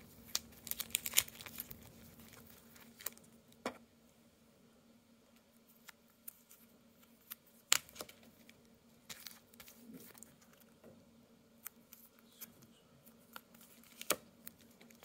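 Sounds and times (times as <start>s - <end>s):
paper rustling: 0.0s - 3.2s, 5.8s - 10.7s, 13.1s - 15.0s
faint low hum: 0.0s - 15.0s.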